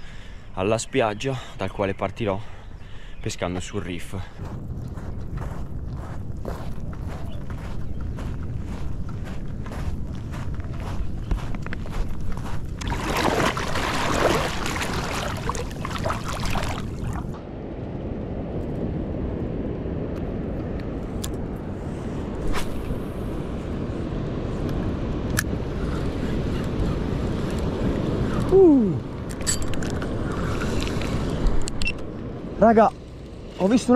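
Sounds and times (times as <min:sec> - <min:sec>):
low rumble of surf: 0:00.0 - 0:33.9
wind: 0:00.0 - 0:33.9
sea water washing and splashing: 0:12.8 - 0:17.4.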